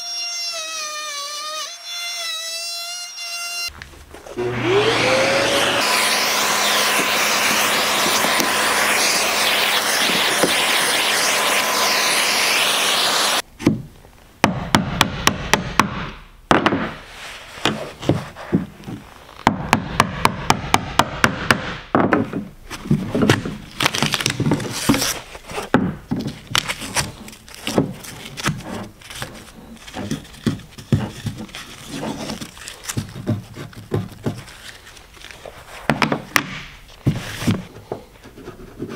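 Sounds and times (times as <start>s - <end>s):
router whining cutting wood: 4.2s - 13.4s
scraping wood: 22.2s - 38.9s.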